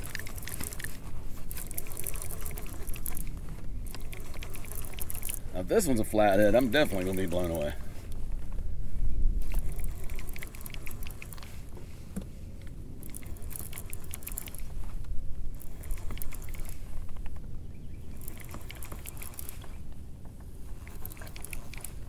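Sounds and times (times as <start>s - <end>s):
fishing reel clicking: 0.0s - 7.7s, 9.4s - 11.5s, 13.0s - 14.8s, 15.4s - 17.2s, 18.1s - 19.8s, 20.7s - 22.0s.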